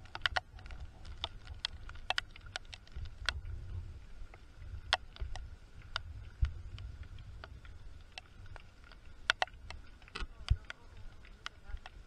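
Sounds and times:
low rumble on microphone: 2.8s - 11.9s.

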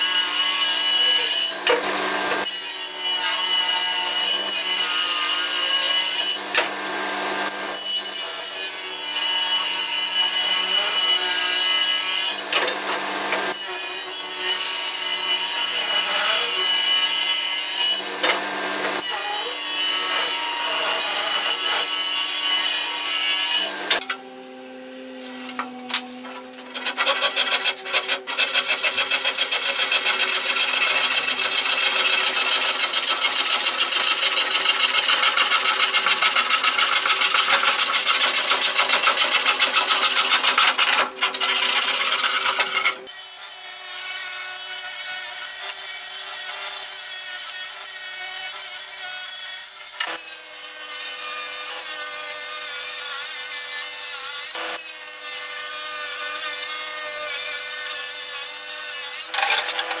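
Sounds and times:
handsaw cutting wood: 0.0s - 24.2s, 25.0s - 60.0s
panel saw whine: 0.1s - 26.8s.

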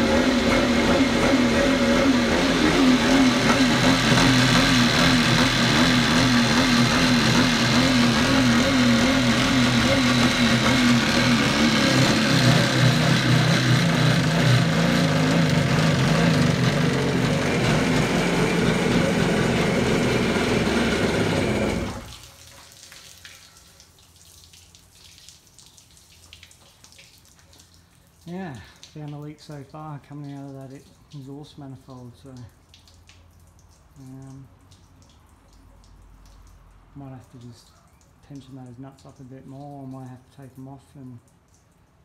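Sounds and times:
two-stroke engine running: 0.0s - 22.2s
water trickling and dripping: 22.1s - 42.0s.

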